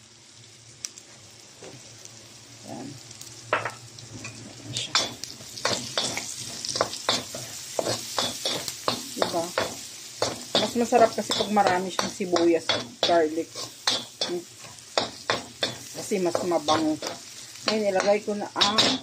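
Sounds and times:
food sizzling in hot oil: 0.0s - 19.0s
spatula scraping a wok: 4.8s - 19.0s.

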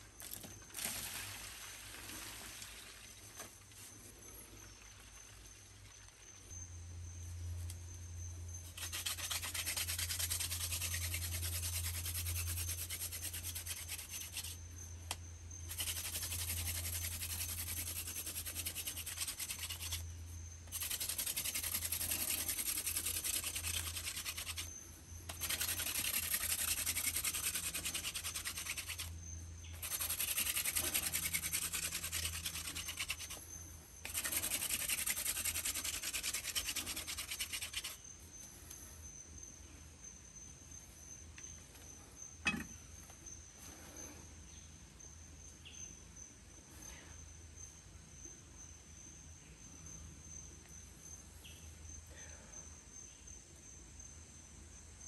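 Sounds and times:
hand drill rasping friction grind: 8.7s - 14.5s, 15.7s - 20.0s, 20.7s - 24.7s, 25.3s - 29.1s, 29.8s - 38.0s.

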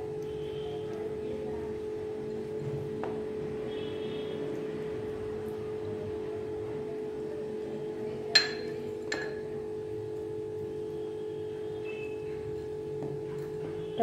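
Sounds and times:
clinks against ceramic dish: 8.3s - 9.5s.

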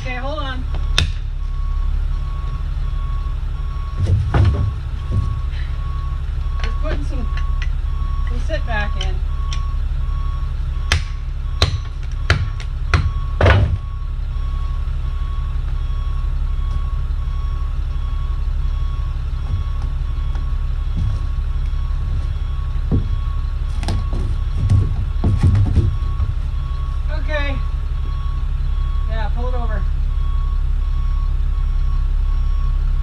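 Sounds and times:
engine idling: 0.0s - 33.0s
reversing alarm beeping: 0.0s - 33.0s
sharp knocks: 3.9s - 5.5s, 10.9s - 13.9s, 22.8s - 26.4s.

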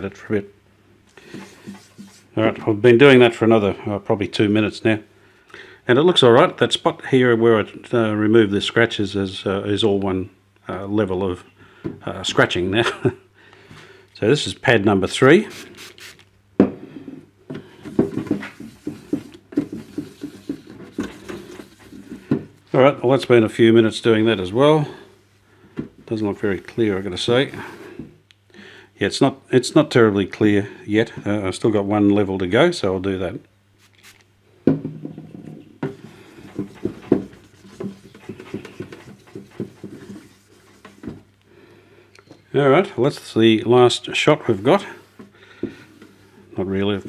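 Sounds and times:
abrasive pad scrubbing plastic: 1.2s - 2.4s, 15.5s - 16.3s, 17.9s - 22.4s, 35.9s - 41.3s.

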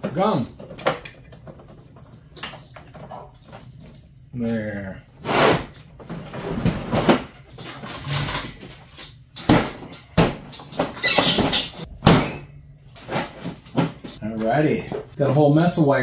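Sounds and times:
knocks and clunks of plastic parts: 0.0s - 3.6s, 5.9s - 12.3s, 13.0s - 15.2s.

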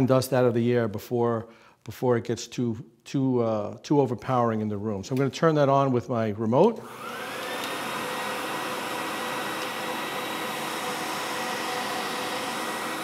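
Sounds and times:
dust extractor running: 6.8s - 13.0s.

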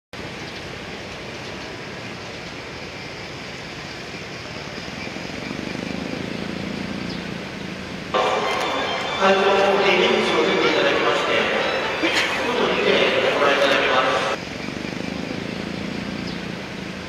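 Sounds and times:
cars driving slowly past: 0.2s - 17.0s
engines idling: 0.2s - 17.0s
tyres rolling: 6.6s - 14.4s.

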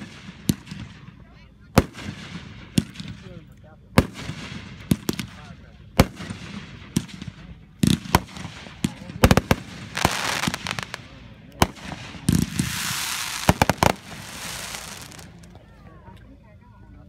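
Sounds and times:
fireworks bangs: 0.0s - 15.5s
fireworks spraying hiss: 7.8s - 15.5s.

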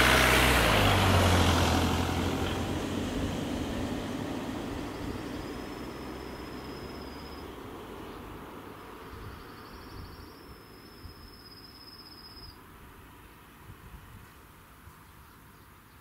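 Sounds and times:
faint train rumble: 0.6s - 11.4s.

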